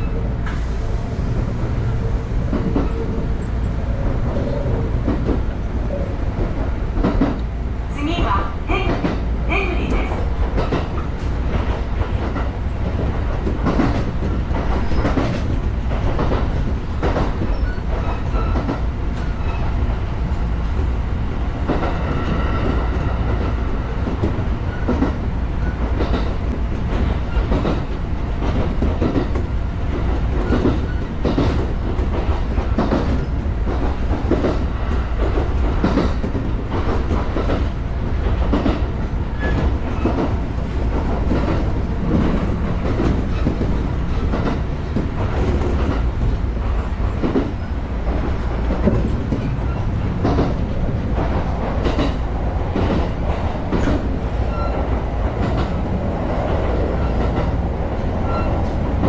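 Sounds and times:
electric train rumbling: 0:00.0 - 0:59.0
wheels clacking over rail joints: 0:21.6 - 0:59.0.

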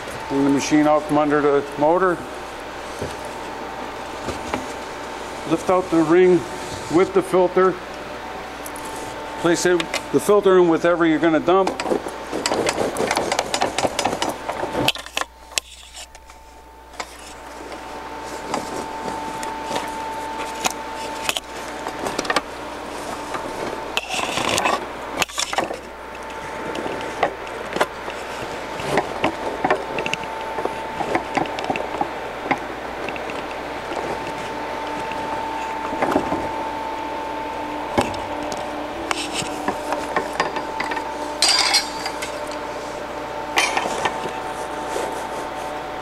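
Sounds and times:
fabric filter scraping and rustling: 0:11.8 - 0:35.9, 0:36.5 - 0:45.8.

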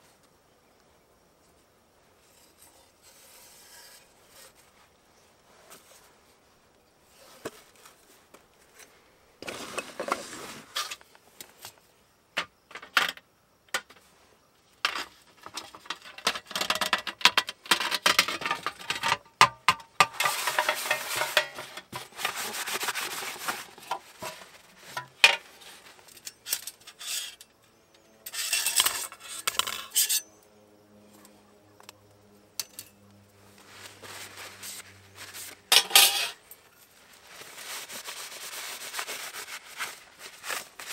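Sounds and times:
metal stove panels clinking and rattling: 0:14.9 - 0:22.4, 0:35.7 - 0:36.4
metal scraping: 0:15.4 - 0:27.5, 0:28.2 - 0:30.3, 0:33.9 - 0:36.6.

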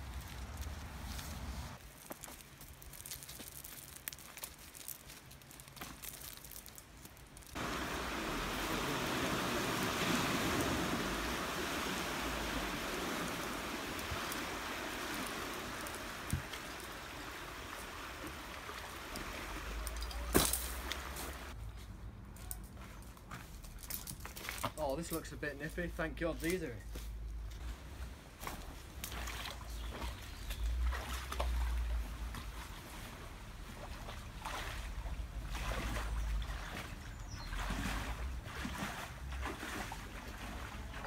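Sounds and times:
climbing rope clicks and rustles: 0:00.0 - 0:07.6, 0:19.1 - 0:21.4, 0:22.4 - 0:25.3
steady rushing noise: 0:07.6 - 0:14.8.

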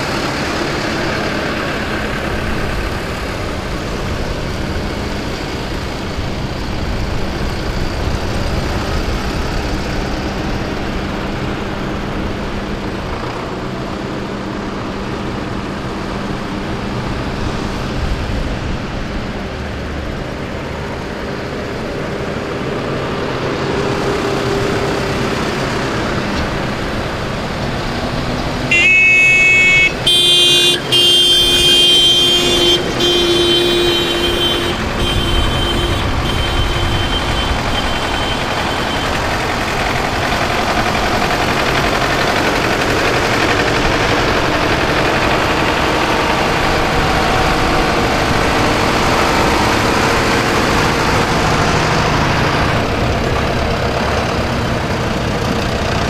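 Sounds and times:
tractor engines driving past: 0:00.0 - 0:56.0
vehicle horn blasts: 0:28.7 - 0:39.2.

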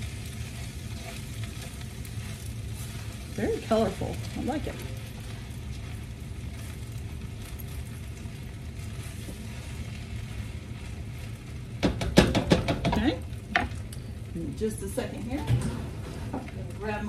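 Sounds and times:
food sizzling in a wok: 0:00.0 - 0:17.0
gas burner hum: 0:00.0 - 0:17.0
spatula clacking against wok: 0:11.8 - 0:13.8.

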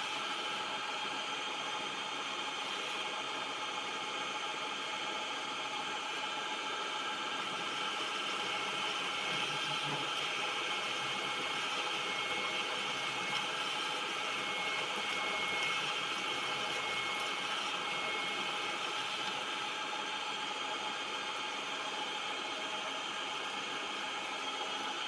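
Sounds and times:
metal lathe running: 0:07.0 - 0:20.0.

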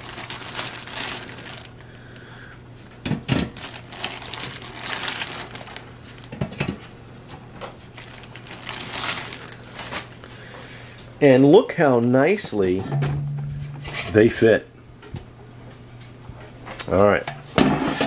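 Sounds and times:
plastic packaging crinkling: 0:00.0 - 0:02.0, 0:03.3 - 0:06.5, 0:07.8 - 0:10.3.

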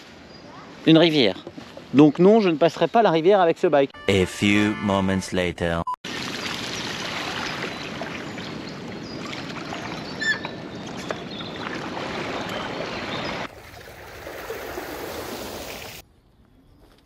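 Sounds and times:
stream water rushing: 0:06.1 - 0:16.0.

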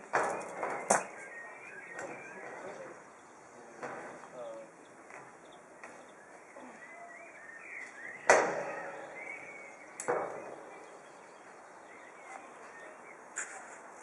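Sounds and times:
sharp knocks: 0:08.2 - 0:09.2, 0:10.0 - 0:10.8.

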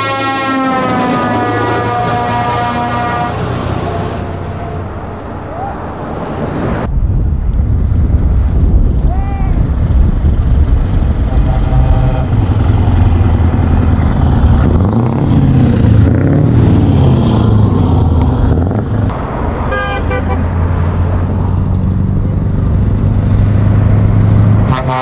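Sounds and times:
truck horn tooting: 0:00.0 - 0:04.2, 0:11.2 - 0:12.7, 0:19.7 - 0:20.6, 0:24.6 - 0:25.0
heavy truck engines revving: 0:00.0 - 0:25.0.

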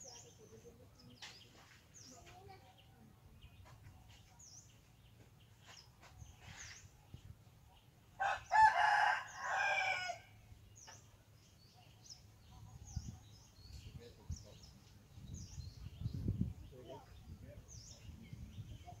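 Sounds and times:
small birds chirping: 0:00.0 - 0:19.0
rooster crowing: 0:08.2 - 0:10.3.

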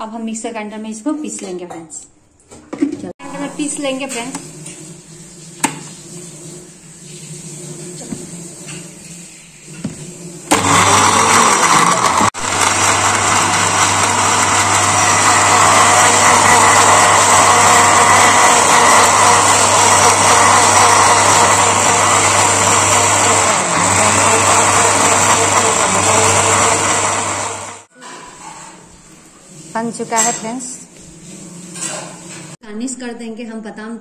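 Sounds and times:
mixer grinder running: 0:03.2 - 0:09.0, 0:09.7 - 0:27.9.

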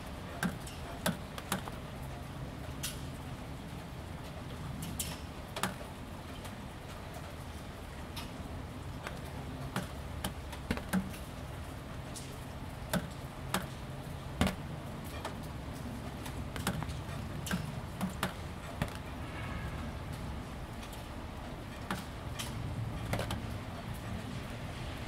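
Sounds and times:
gentle rain: 0:00.0 - 0:25.0
drops tapping on plastic panels: 0:00.3 - 0:01.8, 0:05.0 - 0:05.9, 0:09.0 - 0:19.2, 0:21.8 - 0:23.6.

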